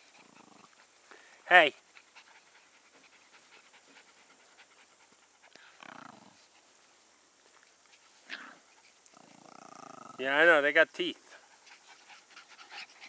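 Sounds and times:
dog panting: 0.0 - 7.0, 11.2 - 13.0.

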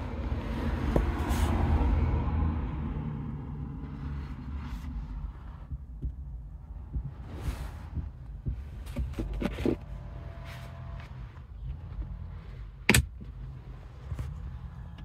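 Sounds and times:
fingers scraping over felt and plastic: 4.1 - 12.5.

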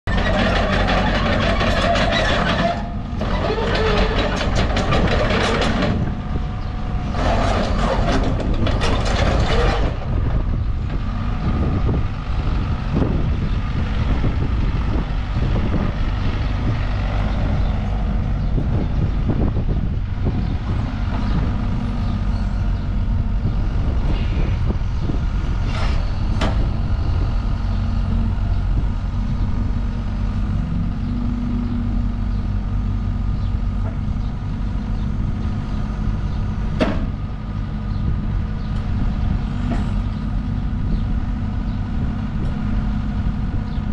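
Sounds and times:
excavator diesel engine running: 0.1 - 43.9
hydraulic and track noise: 0.1 - 43.9.

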